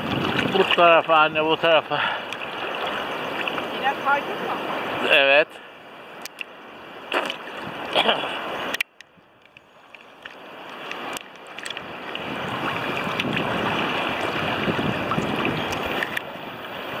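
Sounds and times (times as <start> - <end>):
little splashes: 0.0 - 4.0
small waves lapping: 0.0 - 17.0.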